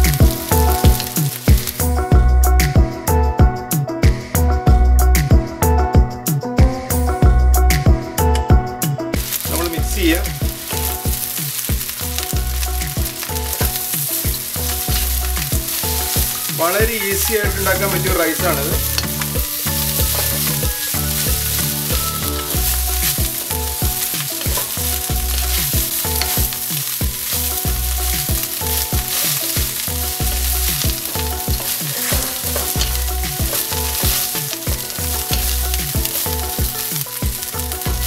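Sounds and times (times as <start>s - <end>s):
rice sizzling in hot oil: 0.0s - 2.9s, 9.2s - 38.0s
low background music: 0.0s - 38.0s
wooden spatula strokes: 9.2s - 38.0s.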